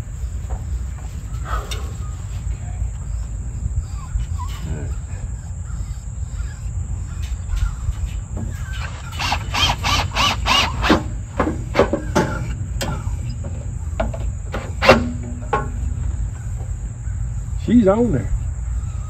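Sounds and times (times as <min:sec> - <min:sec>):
drill squealing screws: 0:08.5 - 0:11.1
drill motor whirring: 0:08.8 - 0:11.2.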